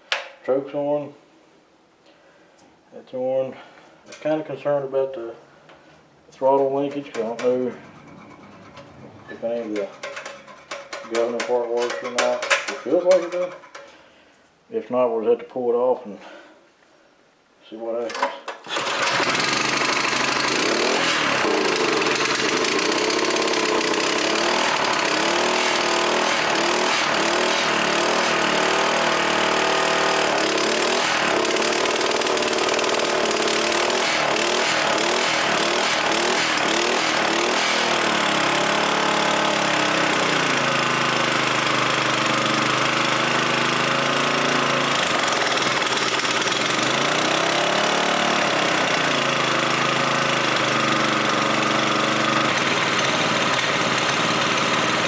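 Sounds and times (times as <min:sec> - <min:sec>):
small engine surging: 0:07.0 - 0:10.7, 0:18.7 - 0:55.0.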